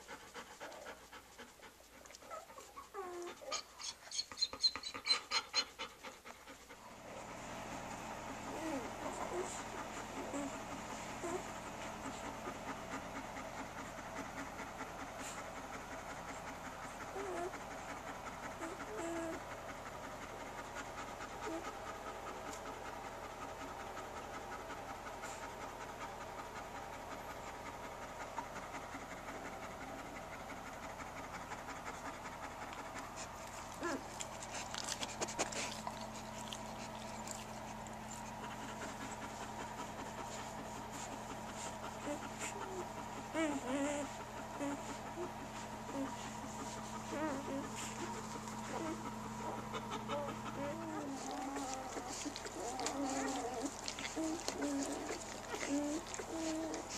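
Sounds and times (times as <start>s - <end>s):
dog panting: 0.0s - 56.9s
puppies squeaking: 3.0s - 5.8s, 45.9s - 56.9s.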